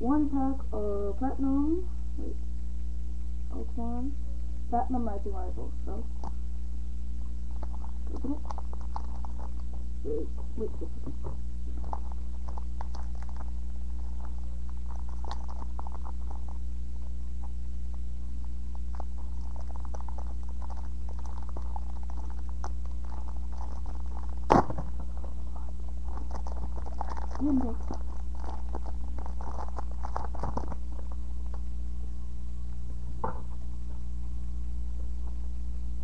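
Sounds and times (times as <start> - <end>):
steady low hum: 0.0 - 36.0
foil wrapper crinkling and tearing: 7.5 - 9.8, 11.7 - 16.7, 18.5 - 31.6
cards rustling and clicking: 26.0 - 31.6.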